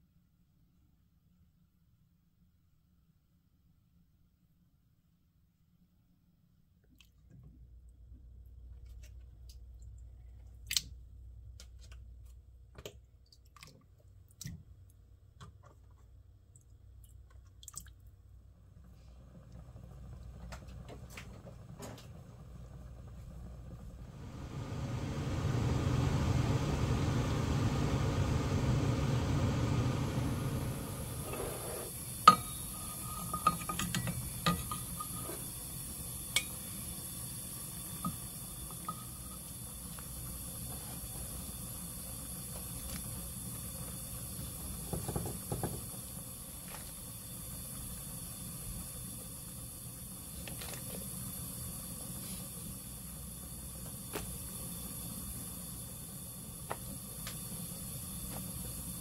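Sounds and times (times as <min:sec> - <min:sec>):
stockpot boiling and bubbling: 0:15.4 - 0:59.0.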